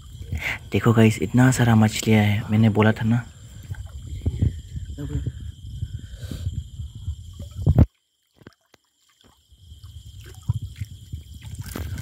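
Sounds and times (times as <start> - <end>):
hands splashing in water: 10.2 - 12.0.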